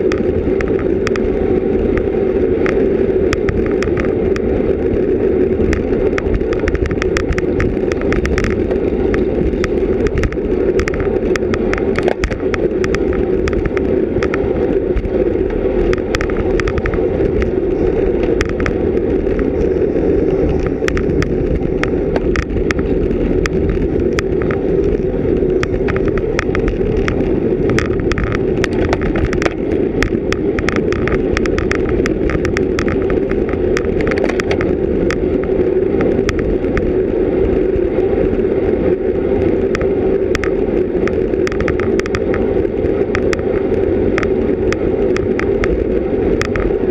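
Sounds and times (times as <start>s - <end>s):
wind and road noise: 0.0s - 46.9s
clicks and rattles: 5.6s - 35.2s.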